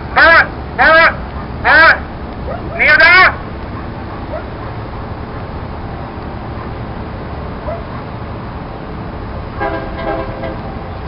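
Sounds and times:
low outdoor rumble: 0:00.0 - 0:11.0
dog barking: 0:01.3 - 0:01.9, 0:03.7 - 0:05.5, 0:07.6 - 0:08.2
dog whining: 0:02.4 - 0:02.8, 0:03.7 - 0:05.6, 0:07.6 - 0:08.2.

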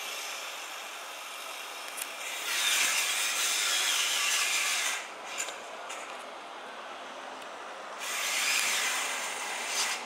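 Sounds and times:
angle grinder cutting steel: 0:02.2 - 0:05.5, 0:08.0 - 0:10.0.

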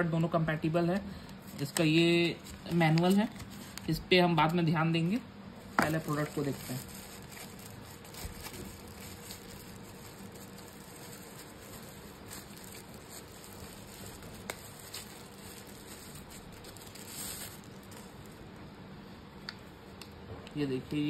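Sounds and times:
plastic wrapper crinkling: 0:01.0 - 0:04.6, 0:05.6 - 0:18.5.

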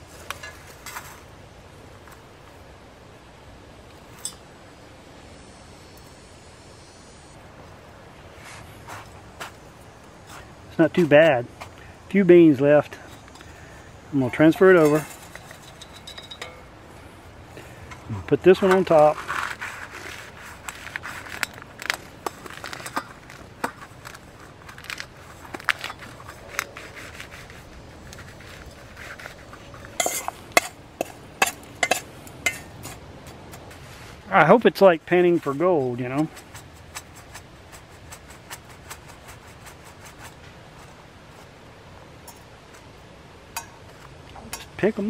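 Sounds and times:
soft rustling: 0:08.3 - 0:11.9, 0:13.0 - 0:34.3, 0:35.0 - 0:41.7
coffee beans crunching in metal pan: 0:18.7 - 0:26.8.

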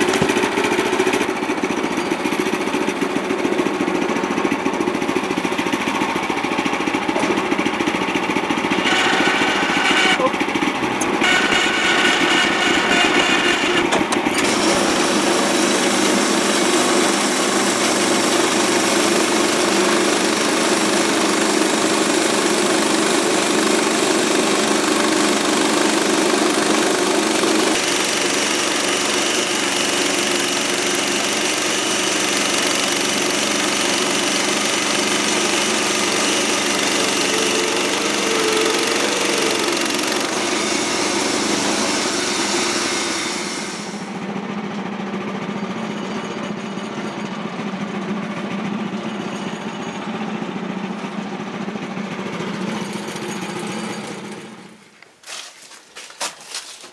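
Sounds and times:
sawmill gasoline engine running: 0:00.0 - 0:55.0
band blade cutting log: 0:08.8 - 0:10.3, 0:11.0 - 0:19.4, 0:27.5 - 0:44.0.

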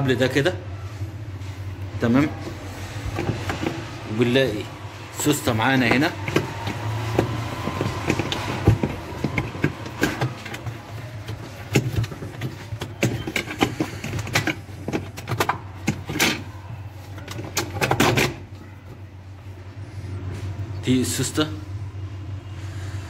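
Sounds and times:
steady low hum: 0:00.0 - 0:23.0
clicks and rattles in plastic body: 0:05.8 - 0:16.5, 0:17.1 - 0:18.4.

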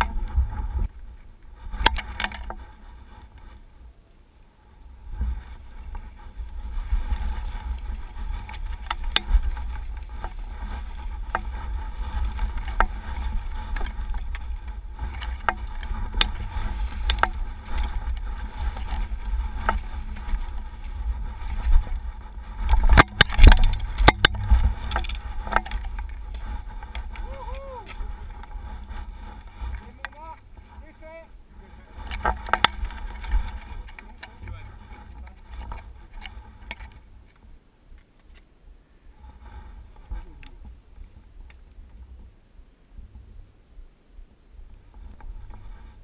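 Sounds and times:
low rumble: 0:02.6 - 0:37.1
skis scraping through snow: 0:04.6 - 0:37.0.

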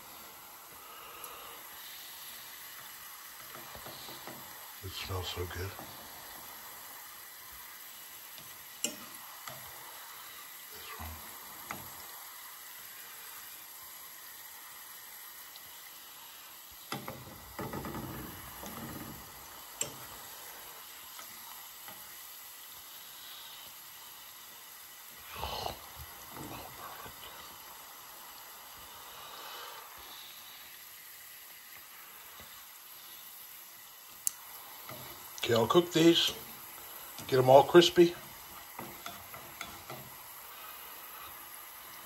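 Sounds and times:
garlic sizzling in oil: 0:00.0 - 0:42.0
chopsticks tapping a pan: 0:08.4 - 0:09.7, 0:16.9 - 0:20.1, 0:34.3 - 0:40.2.

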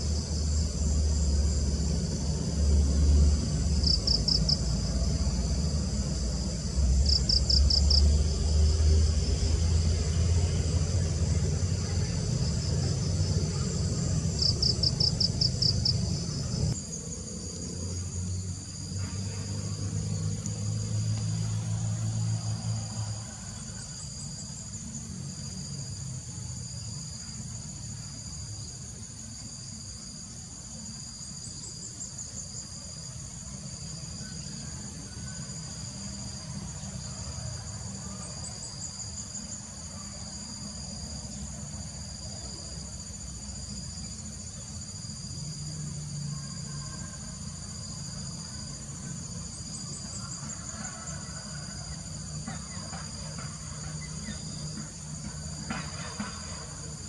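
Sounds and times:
low mechanical drone: 0:00.0 - 0:29.3
high-pitched insect chorus: 0:00.0 - 0:57.0
insect fast trill: 0:00.0 - 0:57.0.

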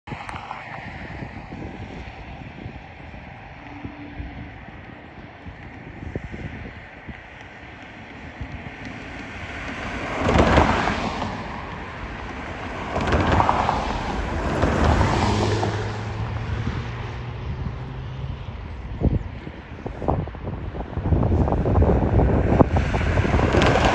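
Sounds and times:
wind buffeting microphone: 0:00.1 - 0:23.9
distant diesel train approaching: 0:02.4 - 0:19.4.

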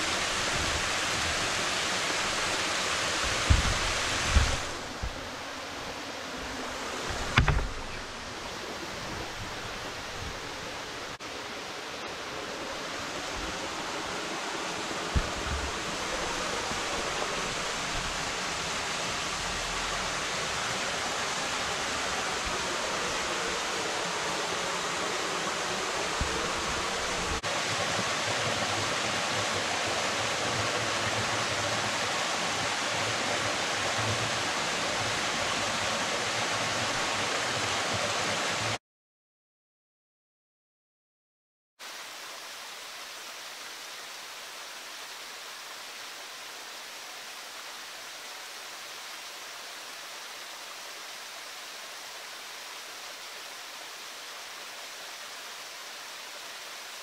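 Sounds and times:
waterfall splashing into pool: 0:00.0 - 0:08.2, 0:13.0 - 0:38.8.

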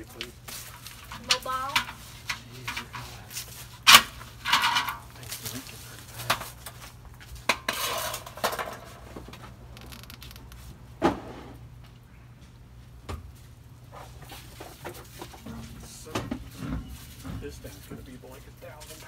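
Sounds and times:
metal parts clanking on concrete: 0:03.9 - 0:05.5, 0:07.4 - 0:09.0.

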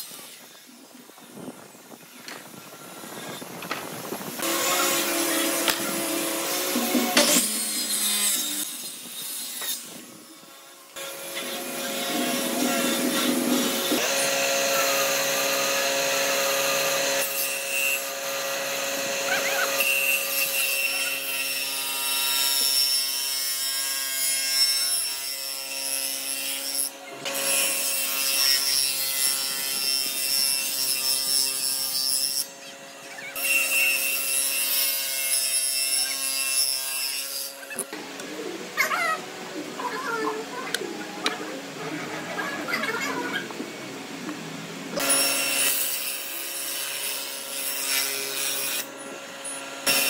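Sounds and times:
table saw motor hum: 0:02.8 - 0:22.5.

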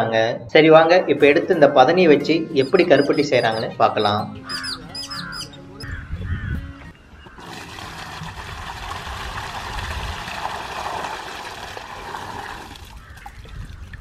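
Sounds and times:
liquid pouring into metal pan: 0:07.4 - 0:12.9.

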